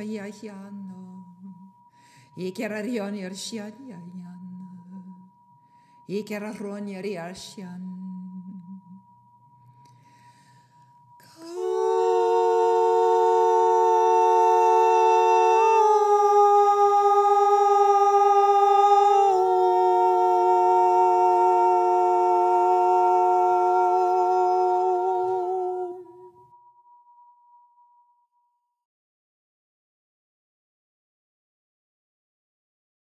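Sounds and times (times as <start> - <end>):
faint high pure tone: 0.0 - 28.5
voices humming a chord: 11.2 - 26.4.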